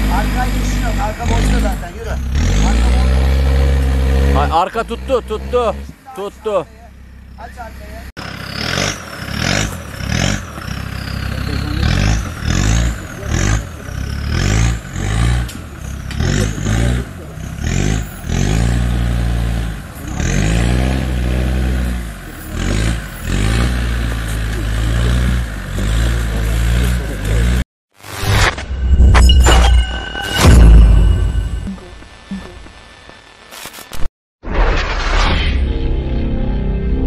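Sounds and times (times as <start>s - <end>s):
diesel engine revving: 0.0s - 27.6s.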